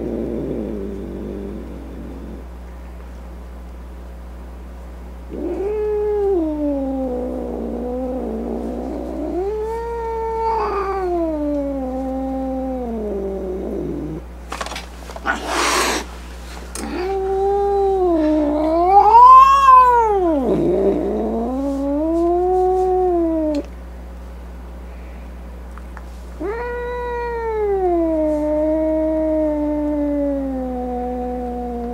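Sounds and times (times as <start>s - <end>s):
cat yowling: 5.3s - 13.8s, 16.8s - 23.7s, 26.4s - 31.9s
cat hissing: 5.3s - 14.2s, 15.1s - 23.7s, 26.3s - 31.9s.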